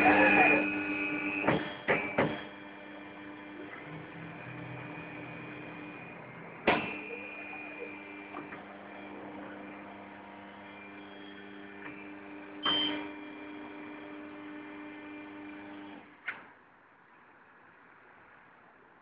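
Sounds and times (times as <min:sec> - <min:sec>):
tyre changer motor hum: 0:00.0 - 0:16.5
loud clunk: 0:01.4 - 0:02.5, 0:06.6 - 0:07.1.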